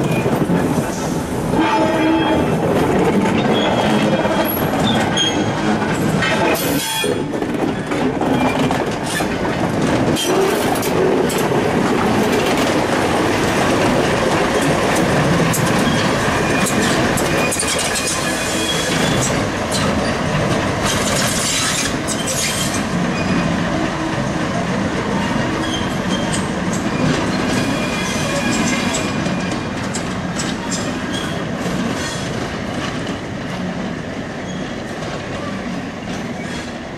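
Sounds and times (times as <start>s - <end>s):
wheels clicking over rail joints: 2.7s - 33.7s
wheel squeal: 3.4s - 5.5s, 20.8s - 23.4s.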